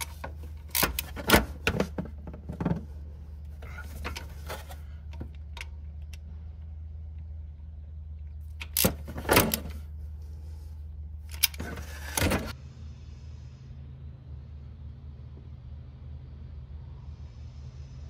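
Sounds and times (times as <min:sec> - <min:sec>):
metallic clanks and scrapes: 0:11.4 - 0:12.6.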